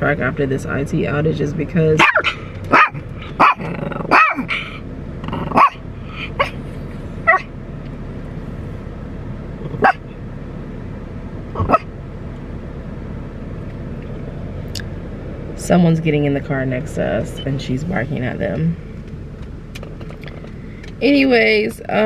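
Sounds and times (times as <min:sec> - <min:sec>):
small dog barking: 0:02.0 - 0:04.5, 0:05.5 - 0:05.8, 0:07.3 - 0:07.5, 0:09.8 - 0:10.0, 0:11.6 - 0:11.9.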